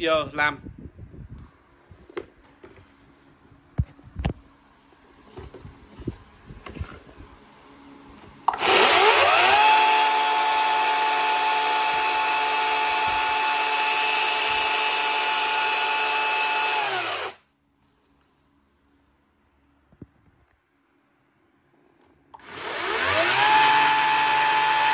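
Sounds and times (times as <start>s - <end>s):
electric chainsaw whine: 8.5s - 17.4s, 22.4s - 24.9s.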